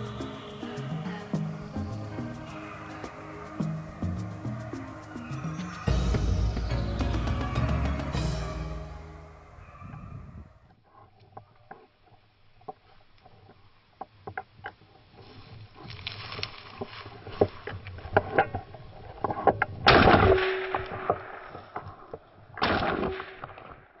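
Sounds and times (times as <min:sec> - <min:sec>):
footsteps crunching through dry grass: 0:00.0 - 0:07.6, 0:14.9 - 0:17.9.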